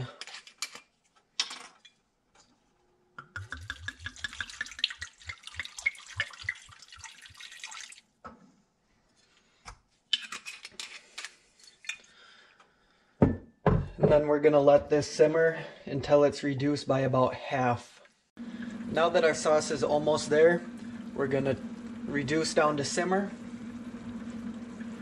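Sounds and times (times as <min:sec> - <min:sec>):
wine splashing into a pan: 0:03.3 - 0:08.0.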